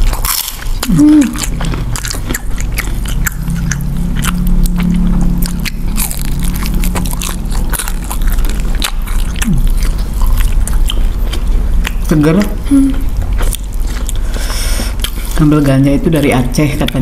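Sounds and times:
chewing and crunching: 0.0s - 17.0s
low hum: 0.0s - 17.0s
wet mouth clicks: 0.8s - 5.9s.

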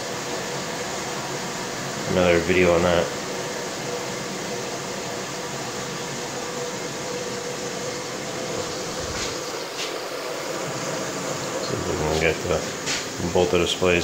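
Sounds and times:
water rushing into washer: 3.2s - 14.0s.

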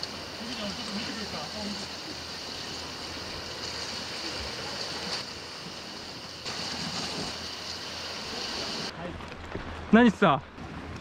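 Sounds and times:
surf washing against rocks: 0.0s - 11.0s.

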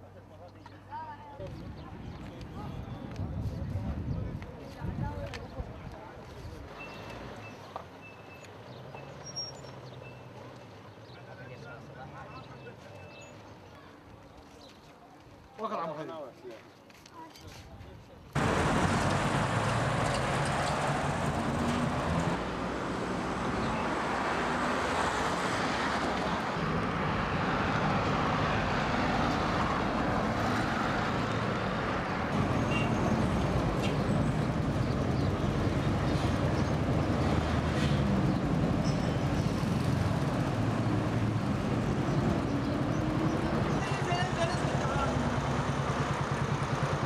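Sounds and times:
vehicle engines running: 18.3s - 47.0s
cars passing: 18.4s - 47.0s.

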